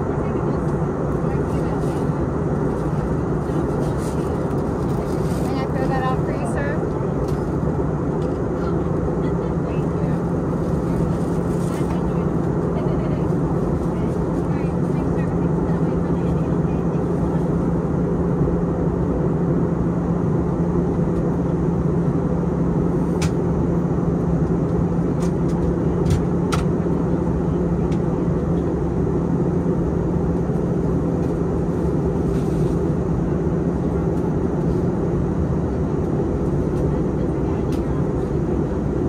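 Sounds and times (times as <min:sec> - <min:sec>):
airplane cabin engine noise: 0:00.0 - 0:39.0.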